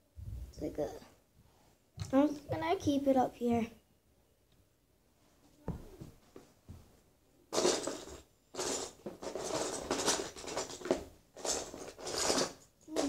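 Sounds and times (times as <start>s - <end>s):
plastic bricks rattling in tub: 7.6s - 13.0s.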